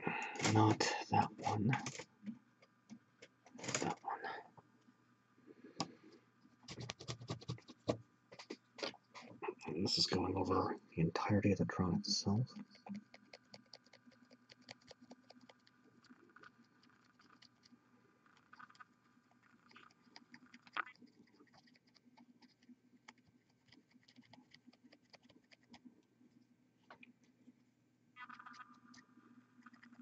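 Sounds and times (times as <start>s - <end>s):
faint steady hum: 0.0s - 30.0s
paintbrush scratching on plastic: 6.6s - 8.6s, 12.5s - 17.8s, 18.4s - 26.4s.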